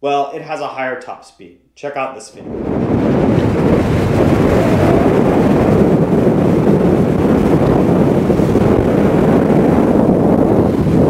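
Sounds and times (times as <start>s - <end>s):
wind buffeting microphone: 2.4s - 11.0s.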